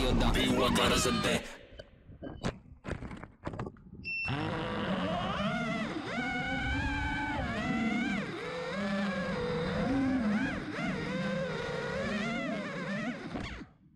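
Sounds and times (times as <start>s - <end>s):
drone motors whining: 4.1s - 13.9s.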